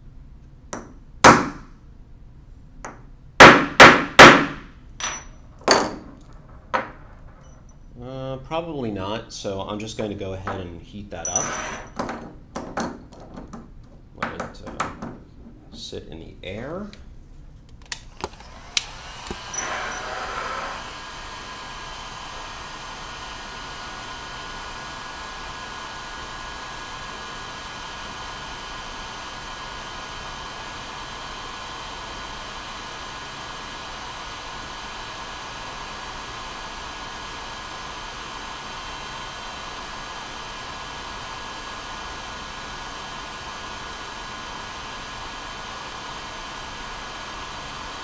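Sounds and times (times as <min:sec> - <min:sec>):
heat gun blowing air: 0:18.1 - 0:48.0.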